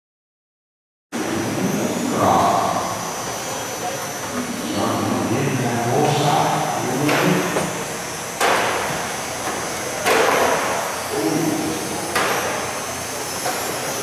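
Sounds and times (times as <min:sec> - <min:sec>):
steady background hum: 0:01.2 - 0:14.0
sharp knocks in a hall: 0:07.0 - 0:07.7, 0:08.4 - 0:10.8, 0:12.1 - 0:12.6.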